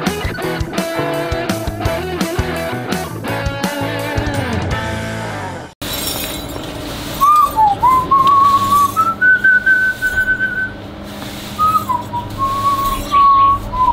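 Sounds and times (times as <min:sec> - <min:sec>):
person whistling a tune: 0:07.2 - 0:10.7, 0:11.6 - 0:13.9.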